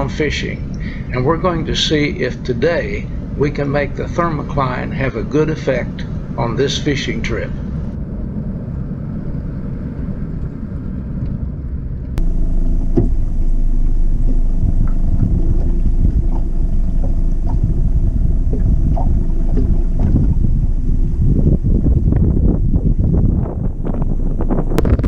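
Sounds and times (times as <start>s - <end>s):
boat motor rumble: 0.0s - 25.0s
vehicle engine and tyre noise: 0.0s - 25.0s
wind and water: 0.0s - 25.0s
hull knocking on waves: 12.2s - 25.0s.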